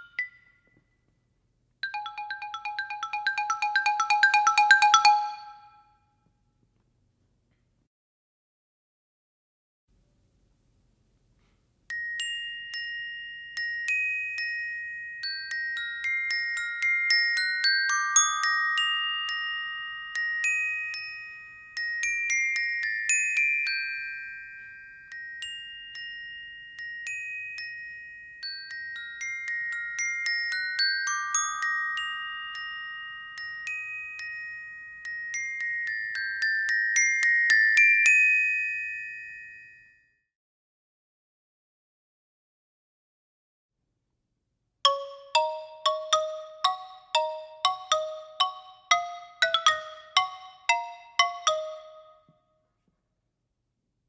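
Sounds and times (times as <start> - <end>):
xylophone melody: 0.0 - 0.7, 1.8 - 5.9, 44.9 - 52.3.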